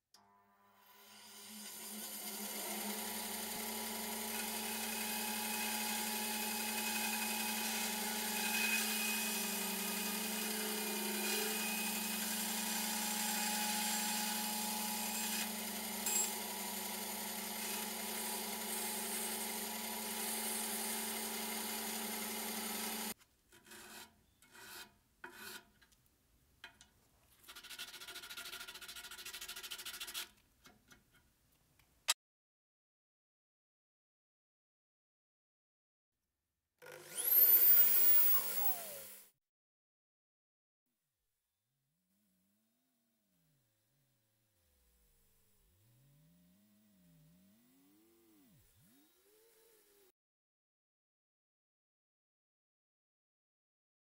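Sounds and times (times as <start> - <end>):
band saw cutting wood: 0.9 - 25.6, 36.8 - 39.3, 45.8 - 50.1
rubbing and scraping wood by hand: 27.3 - 30.4.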